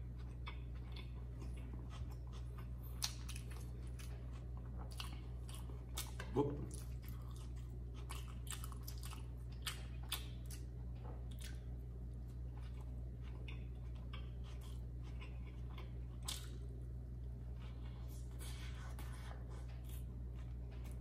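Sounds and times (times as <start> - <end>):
man chewing: 0.0 - 21.0
steady low hum: 0.0 - 21.0.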